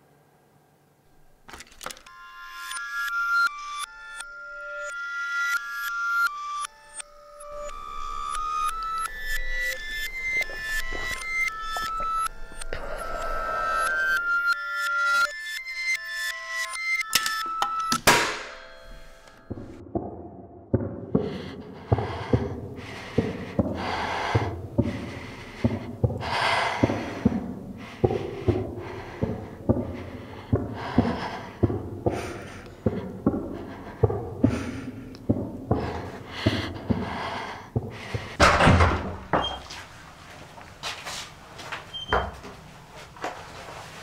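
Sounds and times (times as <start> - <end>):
person panting heavily: 8.8 - 14.3, 20.9 - 38.6
low thumps: 19.5 - 37.0.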